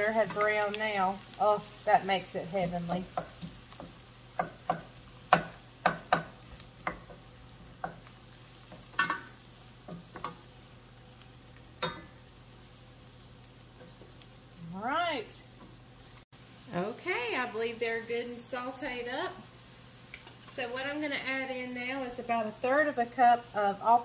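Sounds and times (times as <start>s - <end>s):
onions sizzling in a pan: 0.0s - 24.0s
utensil scraping and tapping pan: 3.0s - 10.5s.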